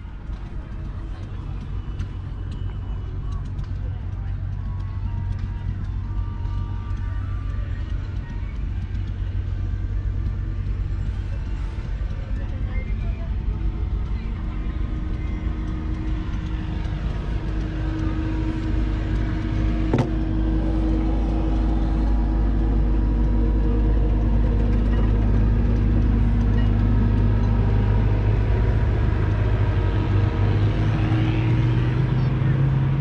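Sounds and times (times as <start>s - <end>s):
tractor diesel engine idling: 0.0s - 33.0s.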